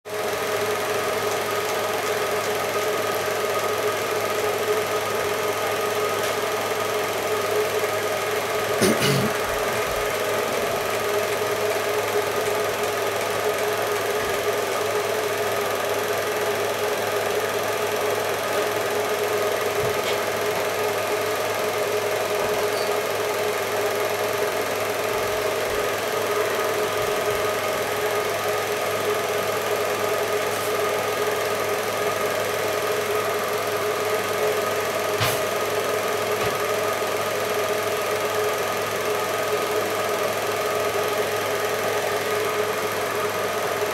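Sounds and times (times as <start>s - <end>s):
film projector whirring: 0.1s - 43.9s
constant hum: 8.7s - 11.3s.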